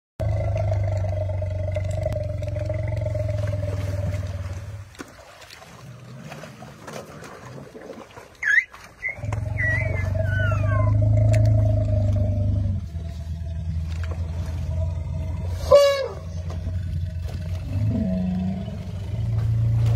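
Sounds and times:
low elephant rumble: 0.2s - 4.9s, 9.0s - 19.9s
elephant squeals: 8.4s - 11.0s
elephant trumpeting: 8.4s - 11.2s, 15.5s - 16.4s.

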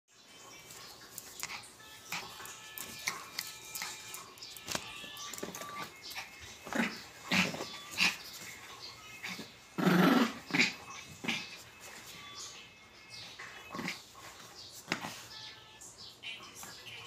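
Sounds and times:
dog growling: 6.7s - 8.2s, 9.2s - 11.6s, 13.7s - 14.0s.

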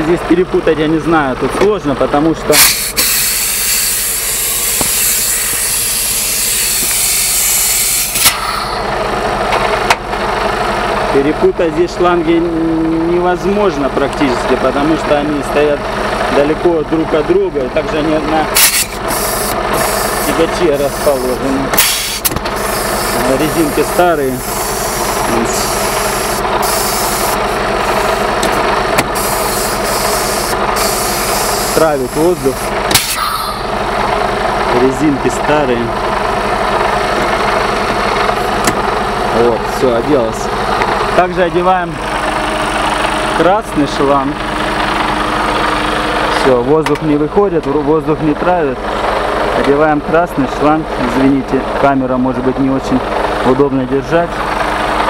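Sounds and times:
diesel engine idling: 0.0s - 55.0s
compressed air hissing: 2.5s - 8.9s, 18.6s - 28.1s, 29.1s - 33.7s.

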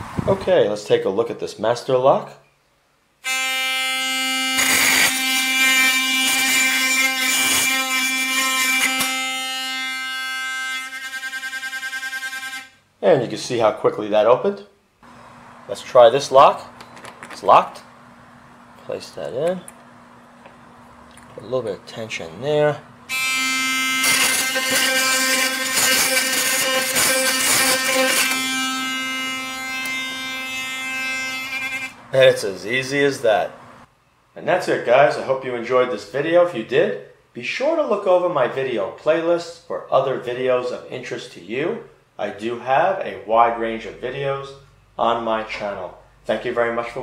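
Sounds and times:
electric pick gun buzzing: 3.2s - 12.7s, 23.1s - 32.0s
rattle of tip against lock pins: 16.8s - 17.5s.

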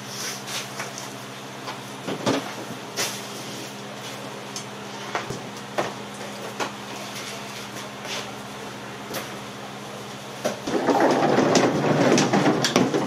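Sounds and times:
steady low hum: 0.0s - 13.0s
equipment clunking in van: 10.5s - 13.0s.

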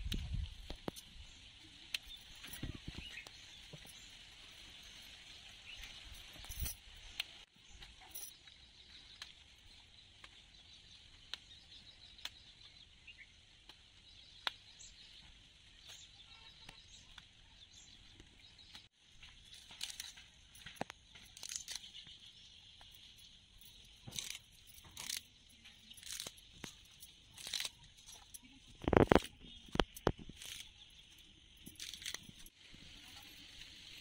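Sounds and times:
stems snapping: 24.1s - 30.7s.

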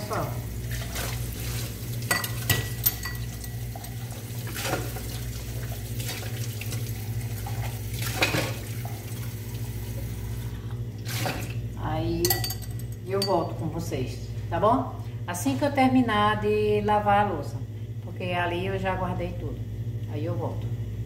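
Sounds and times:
tap water running: 0.0s - 11.8s
constant low hum: 0.0s - 21.0s.

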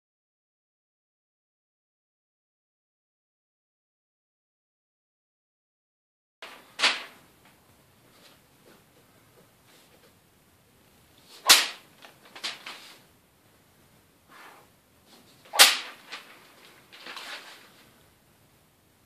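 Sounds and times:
paper rustling: 6.4s - 7.2s, 11.2s - 13.1s, 15.1s - 18.0s
sword swishing through paper: 11.2s - 13.1s, 14.3s - 17.9s.

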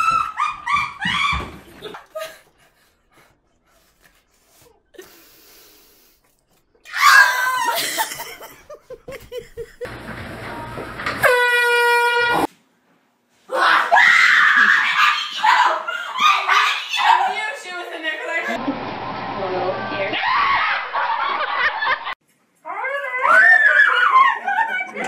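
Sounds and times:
person shrieking and laughing: 0.0s - 2.4s, 6.9s - 9.6s, 13.5s - 17.4s, 22.9s - 25.0s.

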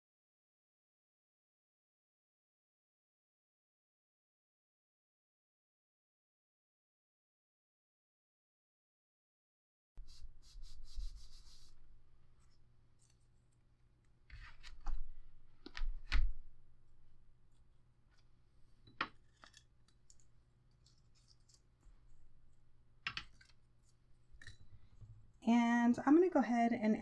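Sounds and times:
palms rubbing paper cover: 10.0s - 13.4s, 14.3s - 16.4s
light taps and clicks of pieces: 15.6s - 16.3s, 23.0s - 25.1s.

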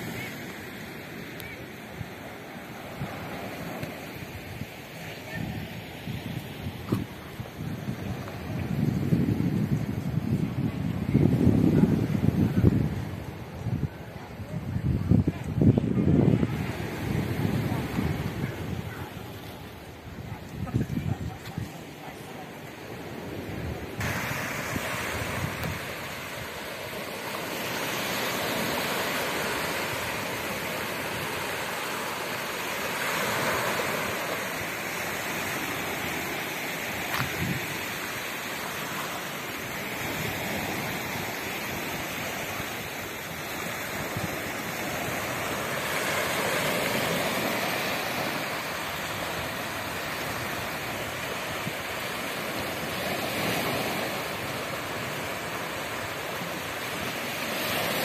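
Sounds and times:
wind on microphone: 2.9s - 58.0s
waves washing against rocks: 14.8s - 58.0s.

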